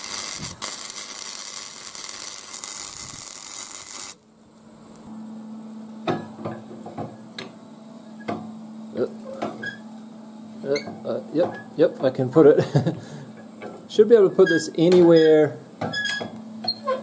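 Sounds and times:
welding arc crackling and hissing: 0.0s - 5.1s, 8.5s - 14.1s.

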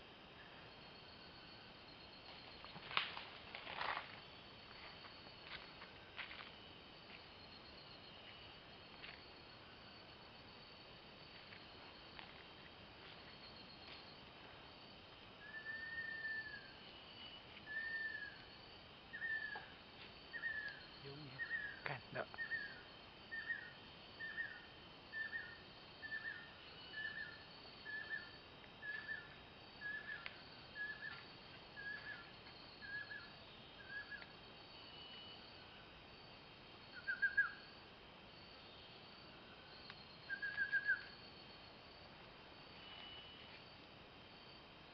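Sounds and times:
insects buzzing: 0.0s - 44.9s
bird whistling song: 15.4s - 18.4s, 19.1s - 19.7s, 22.4s - 30.2s, 30.8s - 31.2s, 32.8s - 34.3s, 37.0s - 37.6s, 40.3s - 41.1s.

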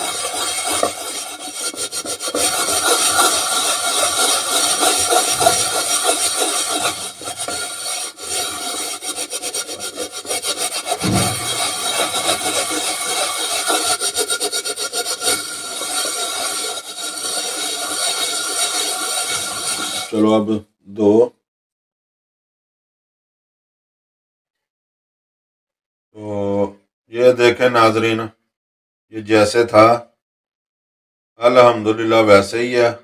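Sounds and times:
wire scrubber scraping frying pan: 0.0s - 20.2s.

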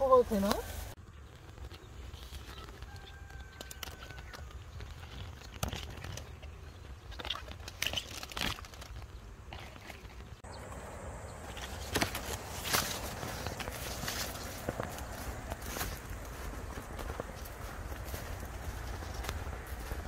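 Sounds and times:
plants rustling and crinkling: 0.0s - 20.0s
sharp crackles and snaps: 1.2s - 10.4s
steady low rumble: 10.4s - 20.0s.

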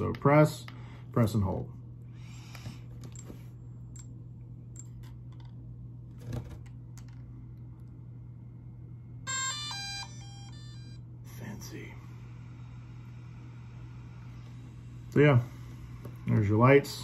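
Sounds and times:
steady low hum: 0.0s - 17.0s
drone startup chime: 9.3s - 11.1s.

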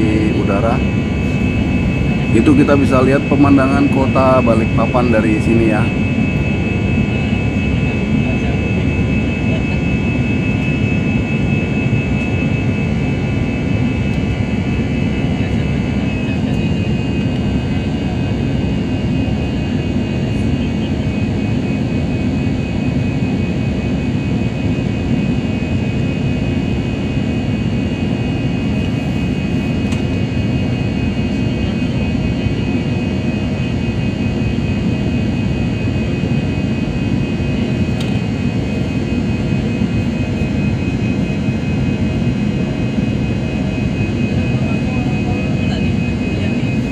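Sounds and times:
jet airliner cabin drone: 0.0s - 46.9s.

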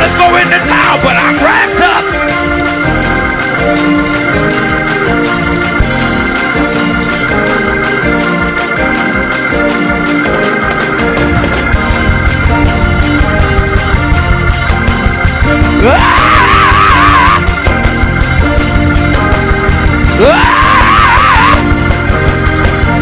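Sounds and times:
organ playing chords: 0.0s - 23.0s
pulsing low beat: 0.0s - 23.0s.

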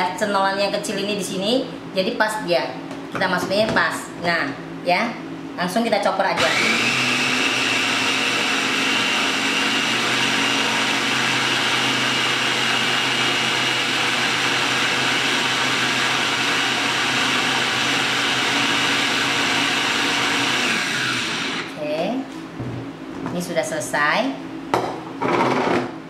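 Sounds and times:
electric food chopper running: 6.4s - 21.8s, 25.3s - 25.9s.

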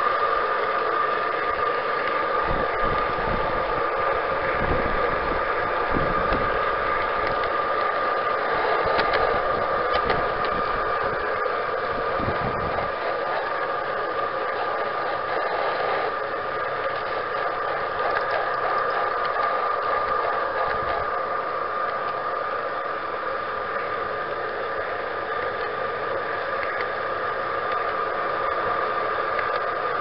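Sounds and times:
wheel rattle: 0.0s - 22.8s
model train drive whine: 0.0s - 30.0s.

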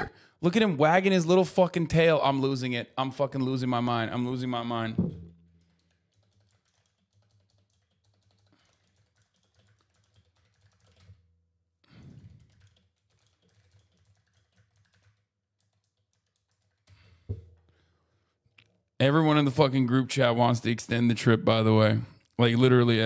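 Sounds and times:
keyboard typing: 5.5s - 11.2s, 11.9s - 17.2s.

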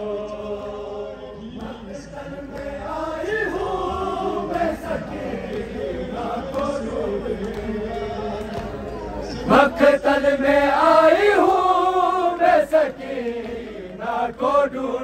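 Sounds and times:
men chanting: 0.0s - 15.0s.

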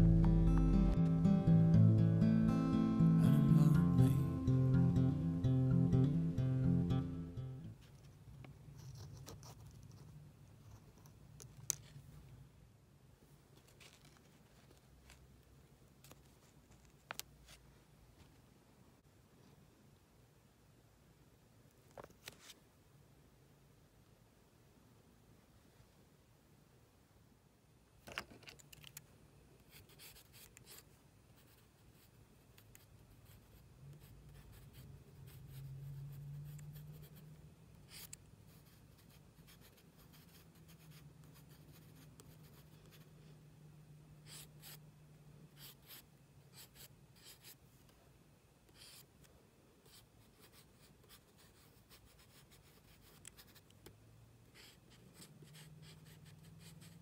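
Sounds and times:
low hum: 0.0s - 7.8s
pencil scratching on card: 29.7s - 37.3s, 37.9s - 43.1s, 44.2s - 44.8s, 45.6s - 47.6s, 48.7s - 49.1s, 49.9s - 53.7s, 54.6s - 57.0s.

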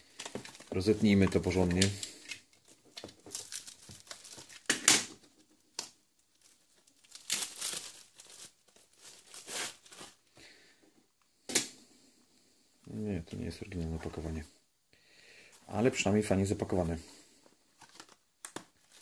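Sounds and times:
plastic bag crinkling and tearing: 0.0s - 10.3s, 17.8s - 19.0s.

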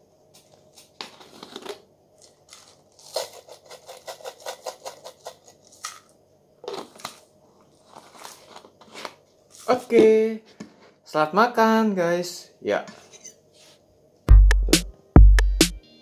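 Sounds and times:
plastic rustling: 0.4s - 9.9s.

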